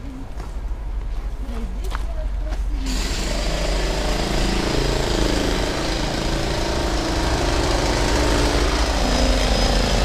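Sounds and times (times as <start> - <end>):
engine running with wavering hum: 2.8 - 10.0.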